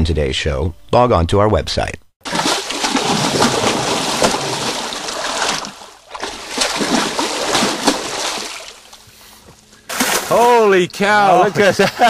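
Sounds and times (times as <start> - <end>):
fish splashing at water surface: 2.2 - 9.0, 9.9 - 10.6.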